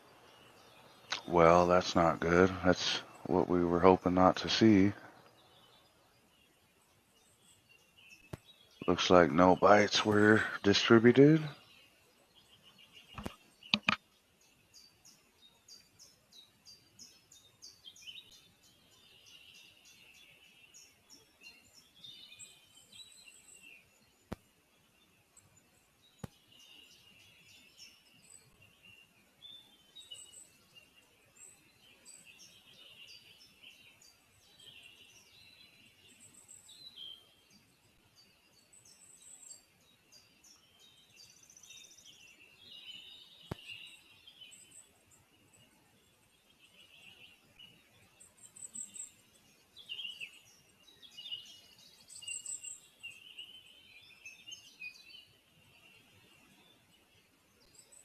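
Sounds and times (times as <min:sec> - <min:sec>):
songbirds chirping: 0:00.0 - 0:58.0
sharp click: 0:13.2 - 0:14.0.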